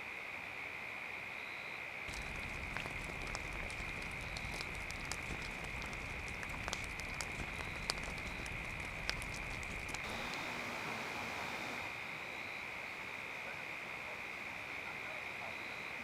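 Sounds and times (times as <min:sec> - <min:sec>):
campfire crackling: 0:02.1 - 0:12.1.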